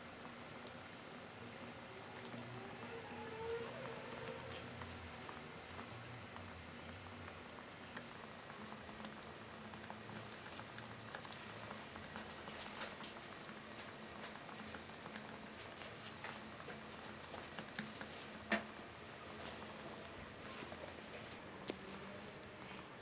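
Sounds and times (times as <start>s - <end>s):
hot metal ball sizzling and crackling: 7.5s - 22.6s.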